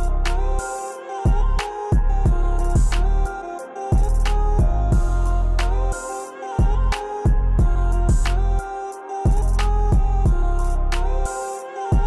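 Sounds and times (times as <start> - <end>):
deep bass notes: 0.0 - 0.6, 1.3 - 3.3, 4.0 - 6.0, 6.7 - 8.6, 9.3 - 11.3
steady drum beat: 1.3 - 3.0, 4.0 - 5.3, 6.6 - 8.4, 9.3 - 10.6.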